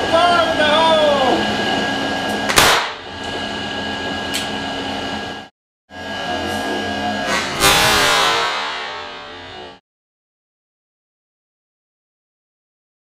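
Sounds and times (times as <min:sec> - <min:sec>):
generator hum and whine: 0:00.0 - 0:09.8
sharp gas ignition bang: 0:02.5 - 0:03.0, 0:07.2 - 0:09.4.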